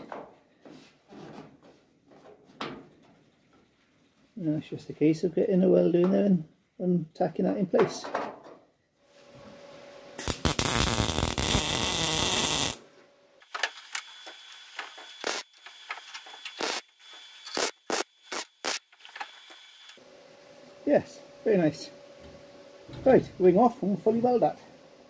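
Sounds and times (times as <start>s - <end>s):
welder arcing: 10.2s - 12.8s, 13.4s - 20.0s.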